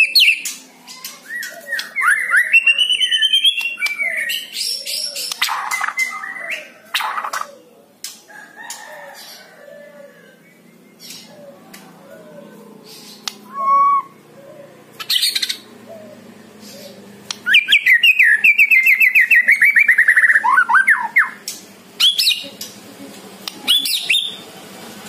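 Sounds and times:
songbird whistling and singing: 0:00.0 - 0:07.3, 0:12.9 - 0:14.3, 0:15.0 - 0:15.6, 0:16.8 - 0:21.4, 0:22.0 - 0:22.4, 0:23.6 - 0:24.4.

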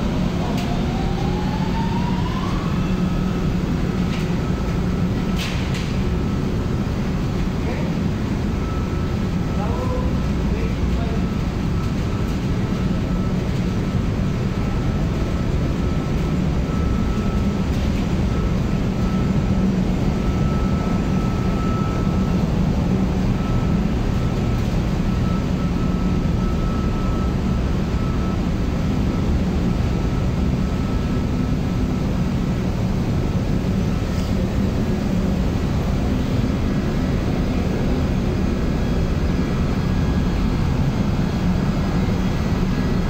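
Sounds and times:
air handling units droning: 0:00.0 - 0:43.0
faint high whine: 0:12.8 - 0:43.0.

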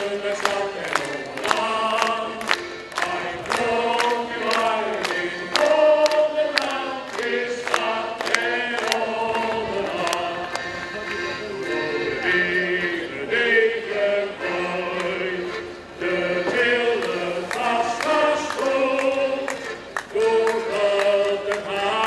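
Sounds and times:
group of voices singing: 0:00.0 - 0:22.0.

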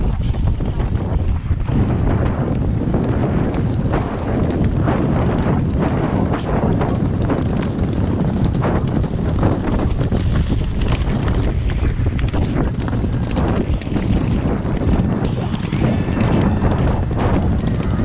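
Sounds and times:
horses galloping on turf: 0:00.0 - 0:18.0
wind buffeting microphone: 0:00.0 - 0:18.0.

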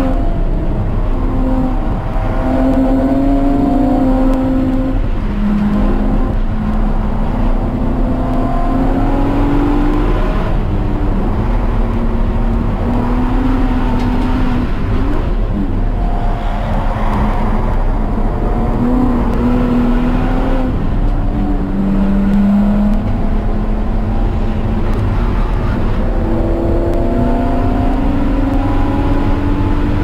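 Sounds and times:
car engine at high revs: 0:00.0 - 0:30.0
wind rush: 0:00.0 - 0:30.0.

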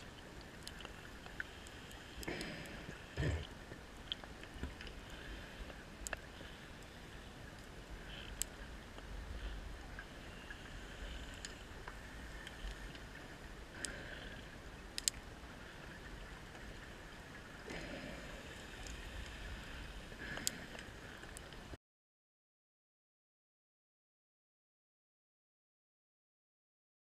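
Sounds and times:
faint underwater hiss: 0:00.0 - 0:03.8, 0:04.5 - 0:21.4.

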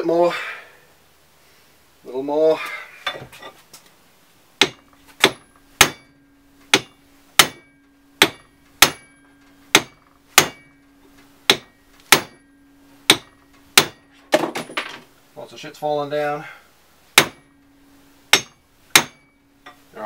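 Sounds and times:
faint steady hum: 0:00.0 - 0:20.0
hammer striking metal chisel: 0:04.6 - 0:14.9, 0:17.2 - 0:17.6, 0:18.3 - 0:19.8.

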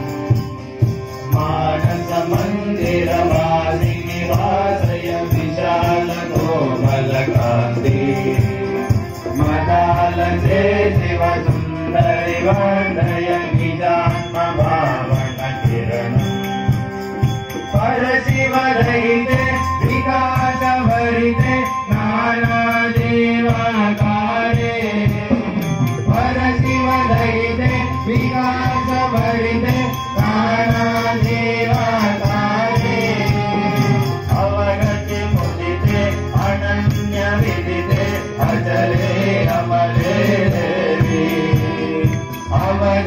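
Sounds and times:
tabla beat: 0:00.0 - 0:43.0
young voices singing: 0:01.3 - 0:16.0, 0:26.1 - 0:43.0.

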